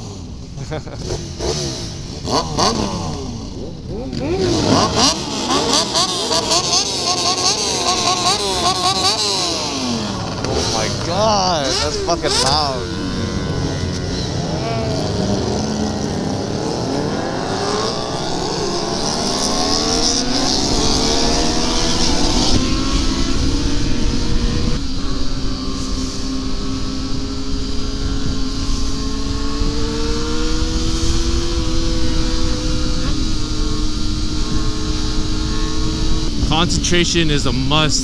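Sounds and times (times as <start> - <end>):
motorcycle engines revving: 0.0 - 38.0
wind on microphone: 9.7 - 38.0.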